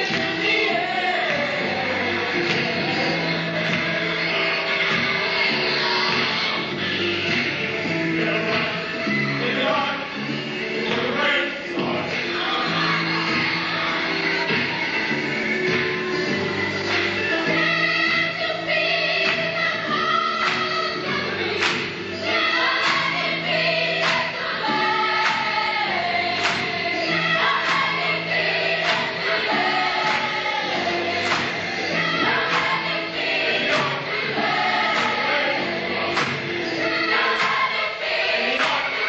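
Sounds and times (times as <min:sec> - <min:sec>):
choir singing gospel: 0:00.0 - 0:39.0
steady beat: 0:22.8 - 0:37.8.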